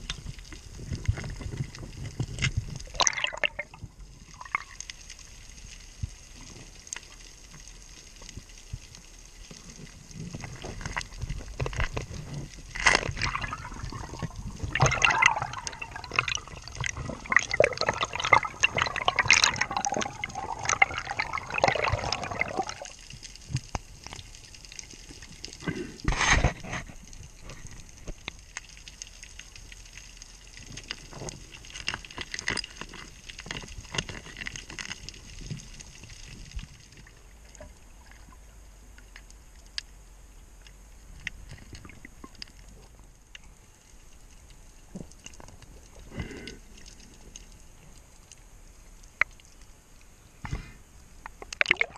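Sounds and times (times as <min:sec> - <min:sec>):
underwater bubbling: 0:00.0 - 0:51.9
water gush: 0:01.9 - 0:05.3, 0:10.0 - 0:23.6, 0:51.6 - 0:51.9.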